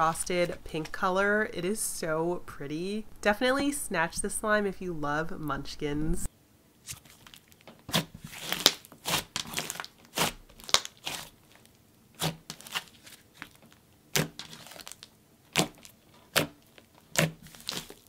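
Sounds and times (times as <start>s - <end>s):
slime squished by hand: 6.8s - 18.0s.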